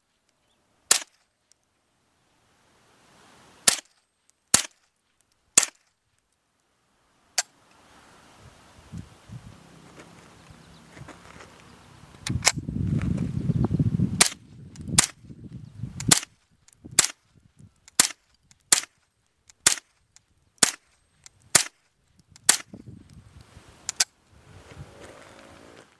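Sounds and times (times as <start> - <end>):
rifle shots: 0.9 - 1.2, 5.6 - 5.9.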